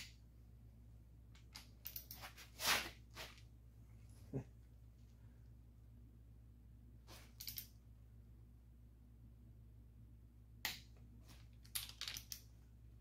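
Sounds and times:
faint low hum: 0.0 - 13.0
metal parts clicking and clinking: 1.3 - 2.4, 7.2 - 7.8, 11.4 - 12.6.

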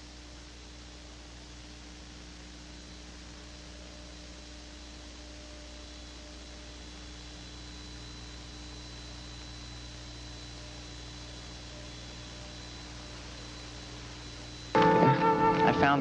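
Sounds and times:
faint high whine: 0.0 - 16.0
low electrical hum: 0.0 - 16.0
tape hiss: 0.0 - 16.0.

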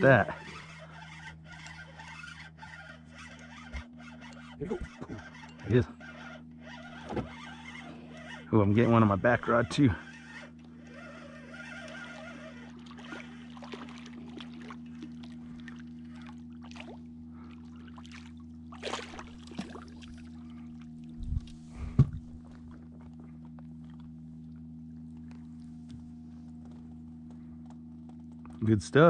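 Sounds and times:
steady low hum: 0.0 - 29.0
fish splashing at water surface: 12.6 - 21.2
heavy thumps: 21.2 - 22.5.

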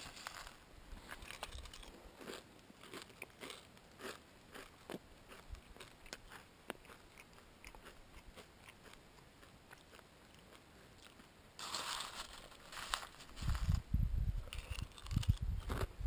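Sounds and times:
spoon rustling in dry flakes: 0.0 - 1.9, 11.6 - 13.8
cereal being chewed: 0.2 - 13.2, 14.5 - 15.9.

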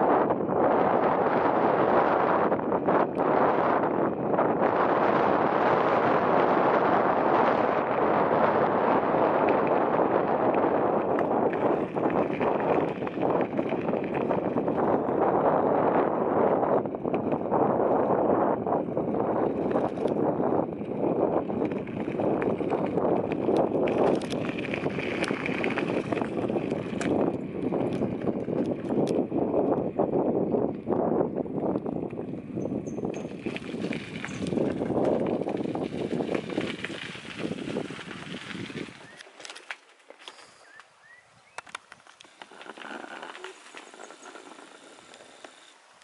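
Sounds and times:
bicycle tyre rumble: 0.0 - 46.0
bicycle clicks and rattles: 19.4 - 29.8, 32.8 - 40.6
bird chirps: 40.4 - 41.7.

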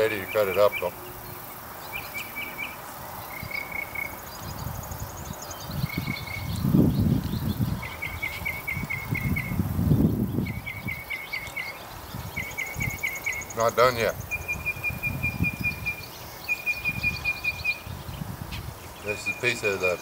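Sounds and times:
bird trilling: 0.0 - 20.0
fainter higher bird trill: 10.3 - 18.0, 18.9 - 20.0.

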